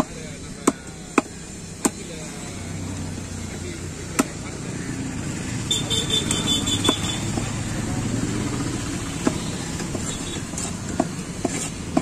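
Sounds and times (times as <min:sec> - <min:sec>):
traffic: 0:00.0 - 0:12.0
knife chopping on wooden block: 0:09.2 - 0:12.0.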